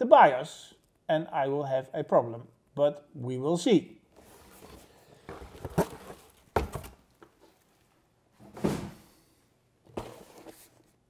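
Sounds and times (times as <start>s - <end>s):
cardboard box rustling and scraping: 4.2s - 7.0s, 9.9s - 10.9s
dull knocks of box: 5.3s - 7.0s.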